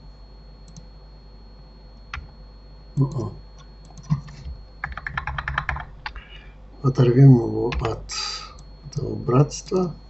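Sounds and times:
computer mouse clicks: 0.7s - 0.9s, 3.0s - 6.3s.

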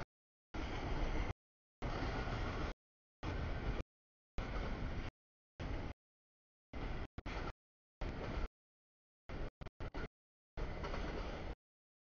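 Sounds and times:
train rumble and wheel noise: 0.6s - 3.8s, 4.4s - 6.0s, 6.7s - 8.5s, 9.3s - 11.6s.

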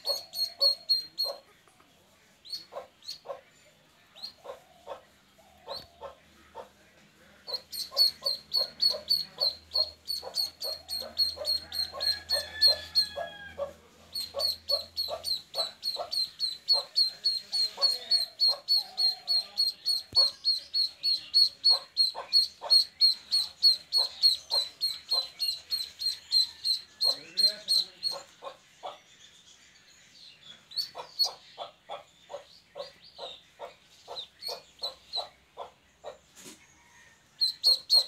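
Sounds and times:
duckling peeping: 0.0s - 1.4s, 5.6s - 6.7s, 7.4s - 13.3s, 14.1s - 29.0s, 30.7s - 36.2s, 37.4s - 38.0s.

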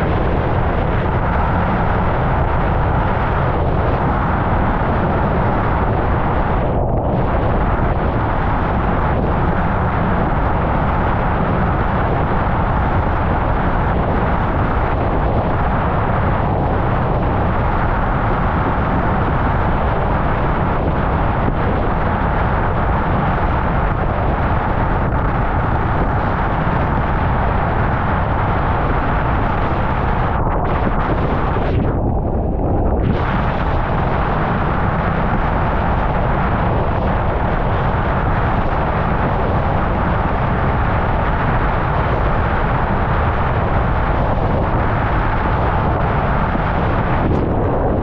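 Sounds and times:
wind rush on microphone: 0.0s - 48.0s.

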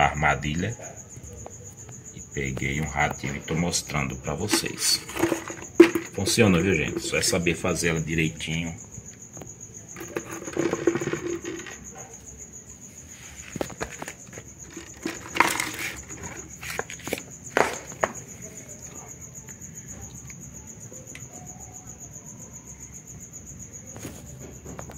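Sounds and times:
cricket chirring: 0.0s - 24.9s
clicks and taps on plastic bottle: 4.5s - 7.3s.

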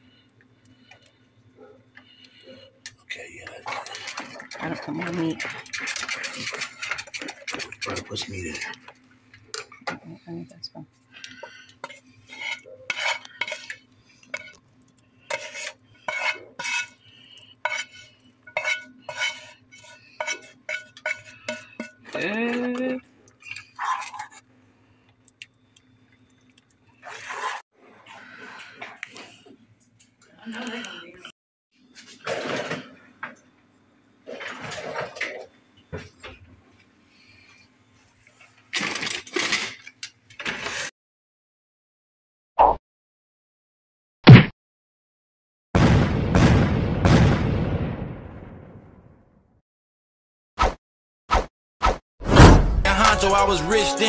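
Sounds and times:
utensil scraping metal skillet: 3.5s - 8.8s, 11.4s - 22.7s
cardboard box and can rustling: 38.8s - 40.9s.

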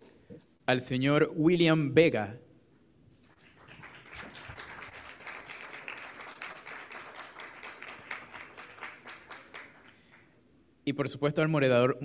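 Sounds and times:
audience applauding: 3.2s - 10.3s.

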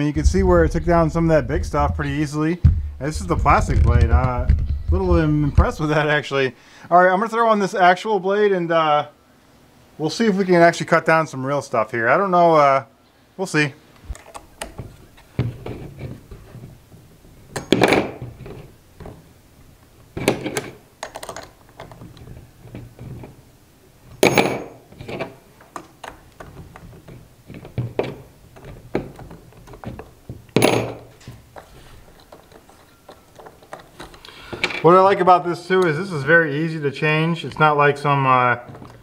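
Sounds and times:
sharp knocks: 1.8s - 5.8s, 24.2s - 25.2s
plastic and metal parts clicking: 20.2s - 23.3s, 31.2s - 34.8s.

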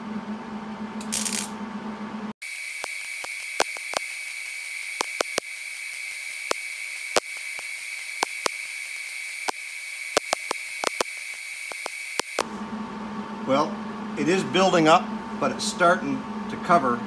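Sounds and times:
welding arc hissing and crackling: 1.0s - 1.5s, 2.4s - 12.5s.

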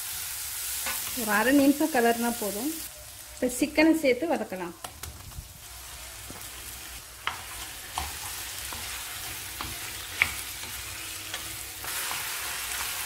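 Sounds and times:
chicken sizzling in hot oil: 0.0s - 3.6s, 5.0s - 13.0s.

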